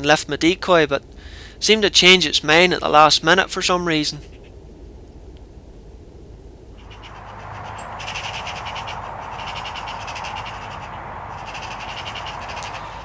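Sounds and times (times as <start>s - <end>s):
background hiss: 0.0s - 13.0s
magpies chattering: 6.8s - 13.0s.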